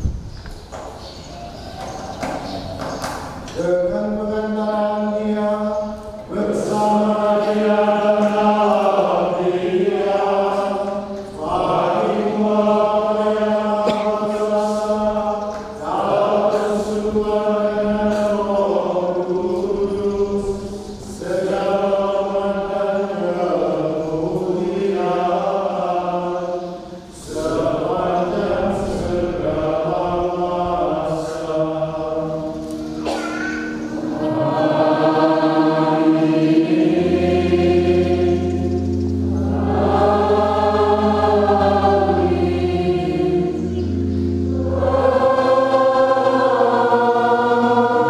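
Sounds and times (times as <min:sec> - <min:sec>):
men chanting liturgical chant: 0:03.5 - 0:32.6.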